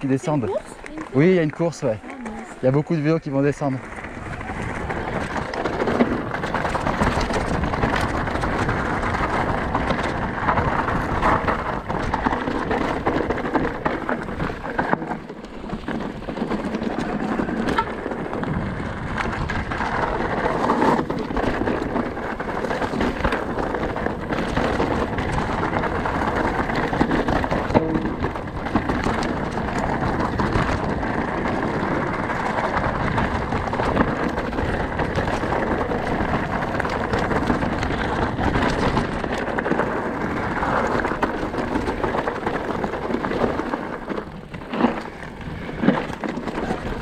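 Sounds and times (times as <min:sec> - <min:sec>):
bike rattling and knocking: 0:00.0 - 0:47.0
bike tyres rumbling over stones: 0:00.0 - 0:47.0.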